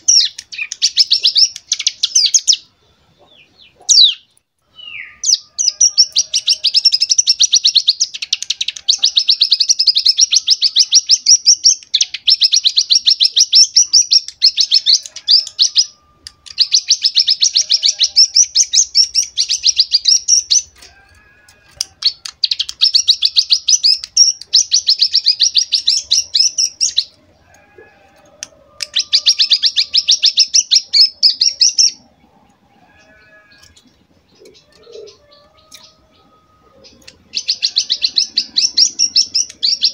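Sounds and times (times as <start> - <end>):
bird singing buzzy rattle: 5.2 - 27.4.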